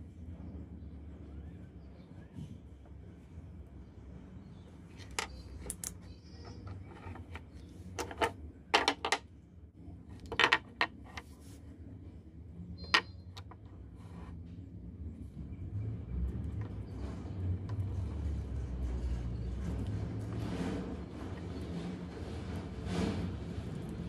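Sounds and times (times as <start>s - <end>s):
metal cells clicking and knocking: 5.0s - 9.2s, 10.2s - 11.1s.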